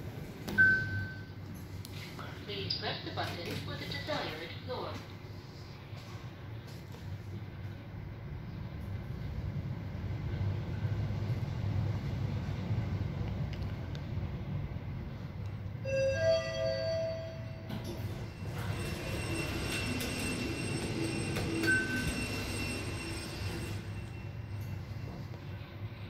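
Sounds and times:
low elevator hum: 0.0s - 26.0s
short high beep: 0.6s - 1.3s
elevator doors sliding: 15.7s - 26.0s
high whine of door operator: 16.1s - 25.3s.

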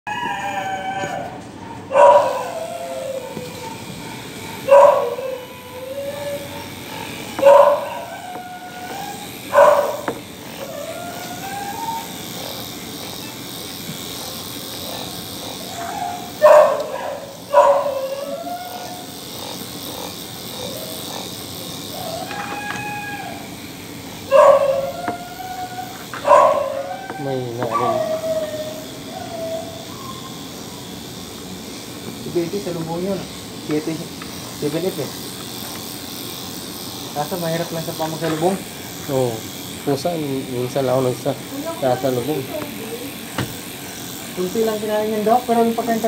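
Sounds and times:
dog whining: 0.1s - 13.5s, 14.1s - 23.6s, 24.3s - 30.6s
small dog yelping barks: 0.9s - 3.6s, 4.6s - 5.5s, 6.2s - 10.1s, 15.7s - 19.1s, 24.3s - 30.3s.

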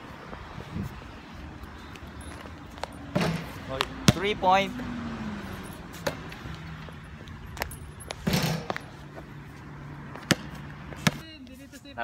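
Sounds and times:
basketball bouncing: 3.1s - 4.4s, 10.1s - 11.2s.

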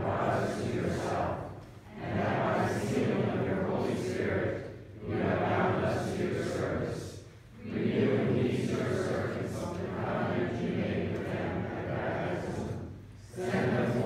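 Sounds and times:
person reciting prayer echoing: 0.0s - 14.0s.

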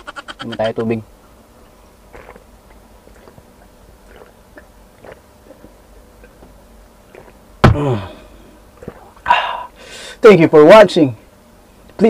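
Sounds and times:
person gulping water: 2.1s - 2.4s, 3.1s - 6.4s, 7.1s - 7.9s, 8.8s - 9.3s
person exclaiming: 7.7s - 8.3s.

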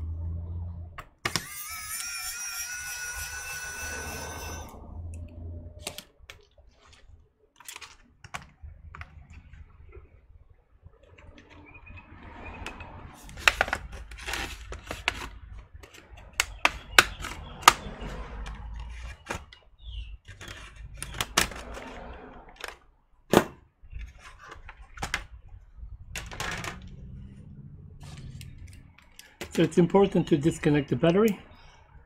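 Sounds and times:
plastic case scraping and rattling: 13.2s - 22.8s, 23.4s - 25.4s, 26.1s - 27.0s.

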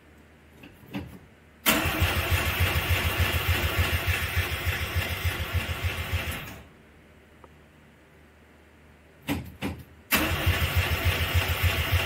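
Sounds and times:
starter cranking car engine: 1.7s - 6.6s, 10.1s - 12.0s.

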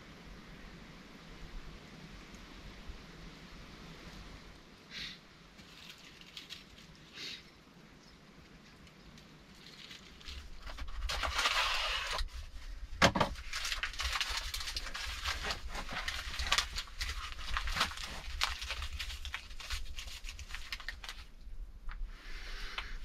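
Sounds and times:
packaging crinkling and tearing: 5.6s - 7.1s, 9.2s - 21.4s.

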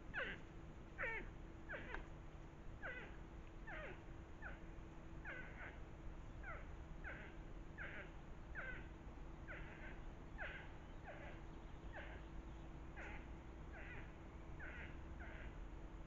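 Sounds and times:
animal high downward calls: 0.1s - 0.4s, 1.0s - 2.0s, 2.8s - 4.6s, 5.2s - 5.8s, 6.4s - 8.9s, 9.5s - 12.4s.

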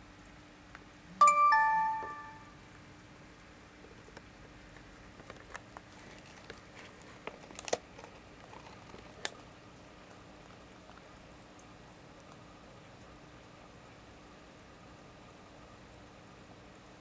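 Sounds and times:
aquarium filter hum and hiss: 0.0s - 17.0s
small bubbling clicks and pops: 3.8s - 13.2s.

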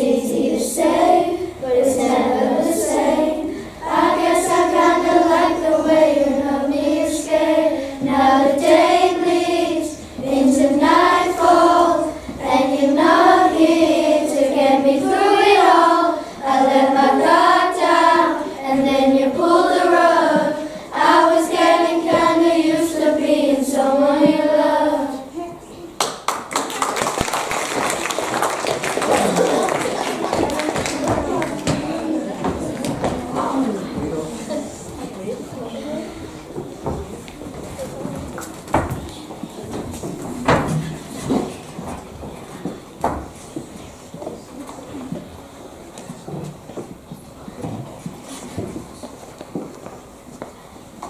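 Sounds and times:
children singing in unison: 0.0s - 25.3s.

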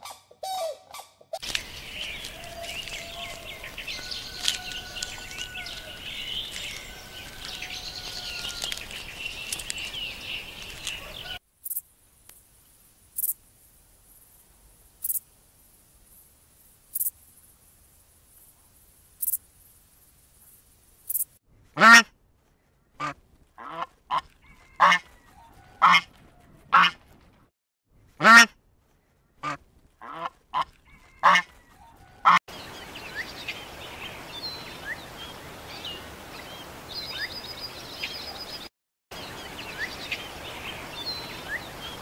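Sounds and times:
small birds chirping: 1.3s - 11.8s, 14.0s - 21.4s, 30.8s - 42.0s
background hiss: 1.4s - 21.4s
geese honking: 1.7s - 8.8s.

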